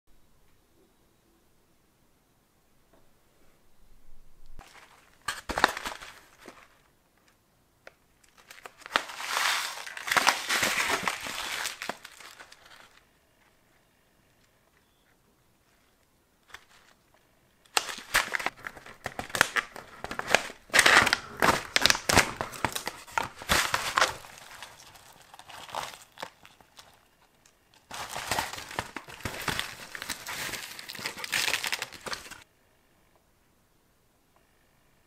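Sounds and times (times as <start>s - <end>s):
plastic pouch crinkling: 4.6s - 6.9s, 8.2s - 13.1s, 16.4s - 17.1s, 17.7s - 32.5s.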